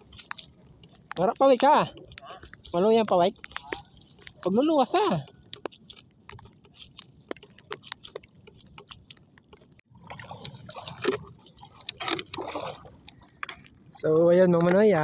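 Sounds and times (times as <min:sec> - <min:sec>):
small clicks and ticks: 0:00.0 - 0:09.9, 0:13.0 - 0:15.0
shallow seawater splashing: 0:10.0 - 0:13.4.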